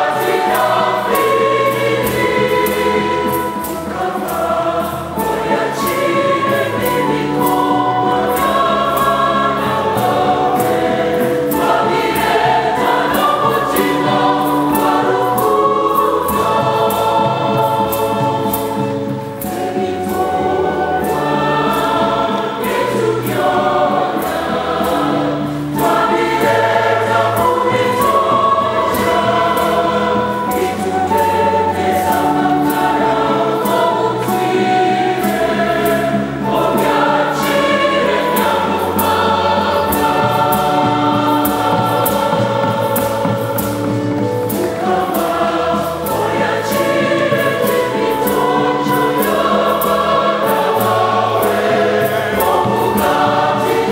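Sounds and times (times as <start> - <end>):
choir singing a hymn: 0.0 - 53.9.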